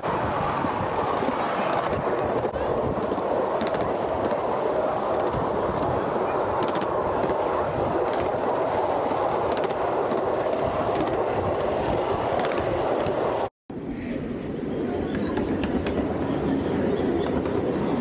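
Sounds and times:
small wheels rumbling on rails: 0:00.0 - 0:13.5.

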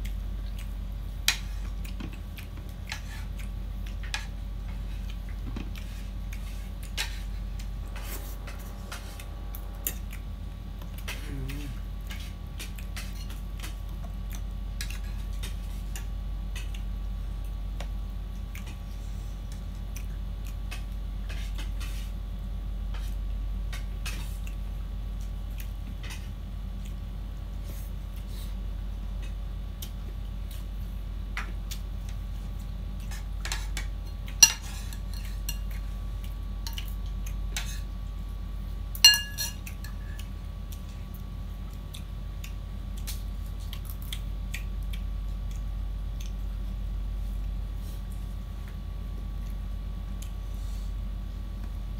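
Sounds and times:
cutlery clinking on plates: 0:39.0 - 0:39.7.

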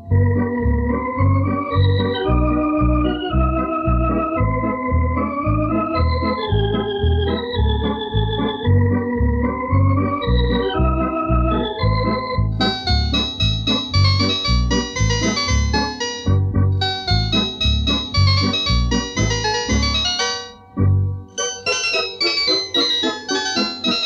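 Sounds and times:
electronic organ melody: 0:00.0 - 0:24.0
piano-like organ voice: 0:00.0 - 0:24.0
steady bass beat: 0:10.8 - 0:20.1.

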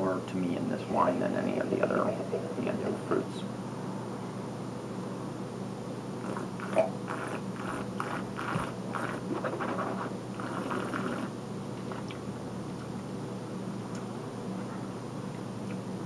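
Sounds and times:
person slurping wine: 0:06.2 - 0:11.3.

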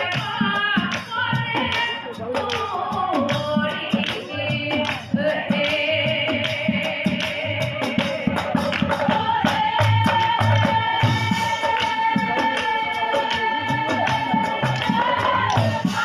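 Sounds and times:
devotional singing: 0:00.0 - 0:16.0
drum beat: 0:00.0 - 0:16.0
hand claps: 0:00.1 - 0:07.4, 0:08.0 - 0:09.1, 0:11.6 - 0:13.5, 0:14.1 - 0:15.8.

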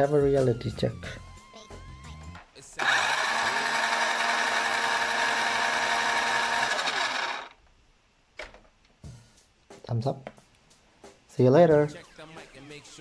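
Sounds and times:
small electric motor whining: 0:02.8 - 0:07.6.

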